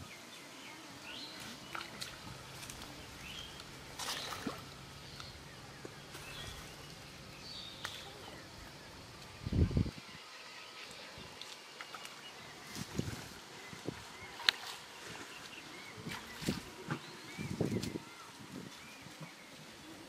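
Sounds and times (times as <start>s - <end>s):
small birds chirping: 0.0s - 20.0s
water sloshing: 1.1s - 9.4s, 10.8s - 17.7s
splash: 1.3s - 3.0s, 3.6s - 4.8s.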